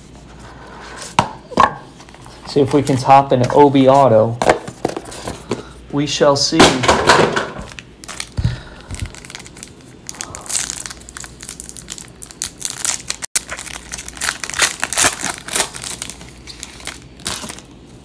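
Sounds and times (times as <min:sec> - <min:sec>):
plastic wrapper tearing and crinkling: 0:07.7 - 0:17.8.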